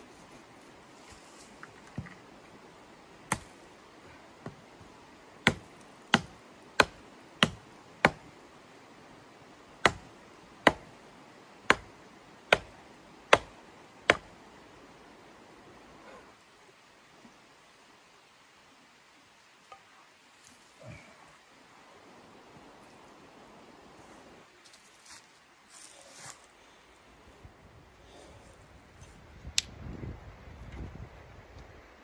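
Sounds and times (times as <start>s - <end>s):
hatchet chopping wood: 3.3s - 3.5s, 5.4s - 8.3s, 9.8s - 10.1s, 10.7s - 10.9s, 11.7s - 11.9s, 12.5s - 14.3s.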